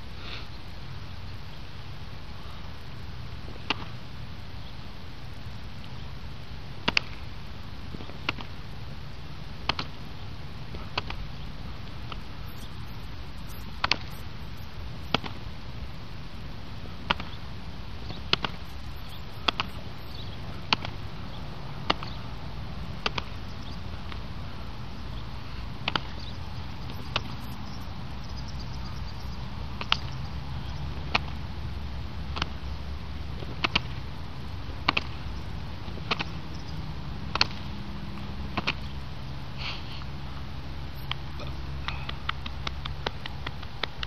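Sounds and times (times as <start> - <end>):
hand slapping foot: 13.8 - 14.1, 19.4 - 19.8, 20.7 - 21.0, 23.0 - 23.3, 25.8 - 26.2, 41.8 - 44.0.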